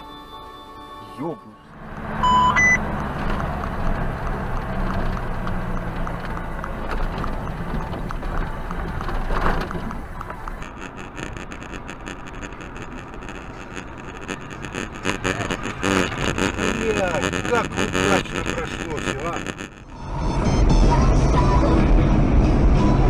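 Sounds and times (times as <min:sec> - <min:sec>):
vehicle cabin engine and road noise: 0:01.2 - 0:23.0
rapid crackling: 0:01.8 - 0:19.9
thin hum: 0:09.1 - 0:20.0.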